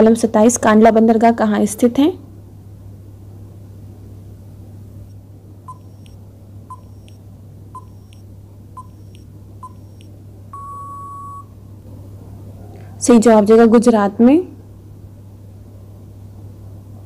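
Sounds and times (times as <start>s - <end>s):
faint low hum: 0.0s - 17.0s
long beep: 5.7s - 7.2s, 7.8s - 8.2s, 8.8s - 11.6s
short beeps: 5.7s - 7.2s, 7.8s - 8.2s, 8.8s - 11.5s.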